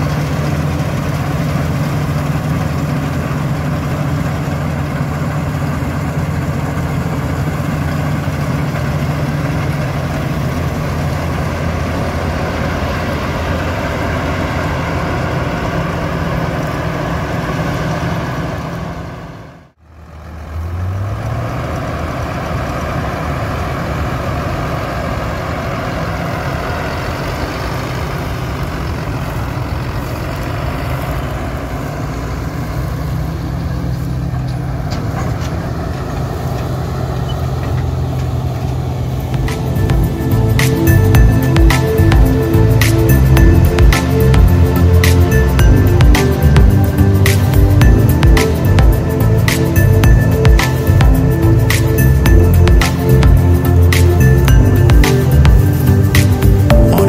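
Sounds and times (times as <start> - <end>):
combine harvester diesel engine hum: 0.0 - 57.0
engine revving: 19.9 - 57.0.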